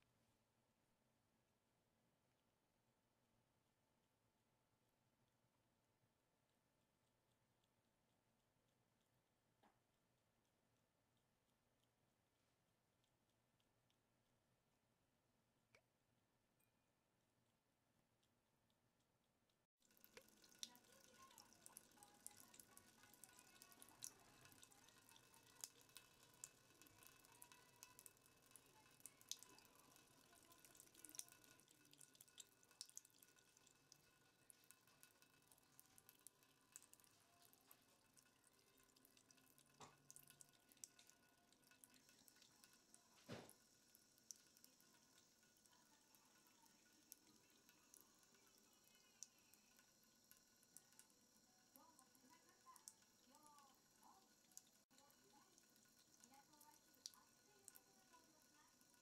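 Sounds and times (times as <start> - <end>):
cat lapping water: 6.4 - 14.9, 17.4 - 59.0
tap water trickling into sink: 19.8 - 59.0.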